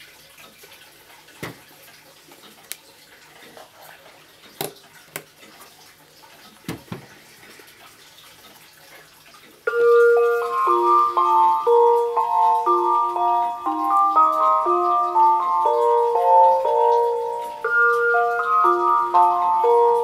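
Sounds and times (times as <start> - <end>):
clock melody chime: 9.7 - 20.0.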